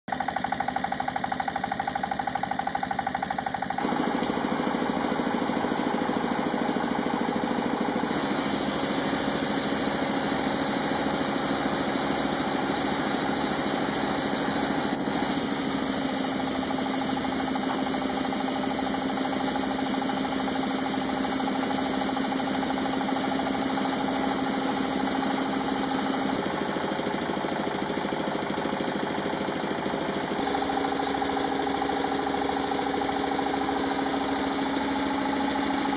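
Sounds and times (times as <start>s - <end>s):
mill grinding grain: 0.1s - 35.9s
stationary engine chugging: 0.1s - 35.9s.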